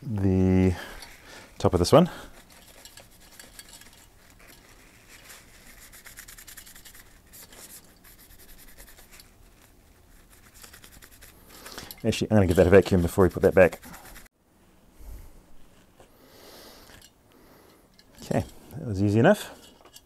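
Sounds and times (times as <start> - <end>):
tissue rubbing metal: 0.8 - 14.3
soft clicks of metal: 16.8 - 18.8.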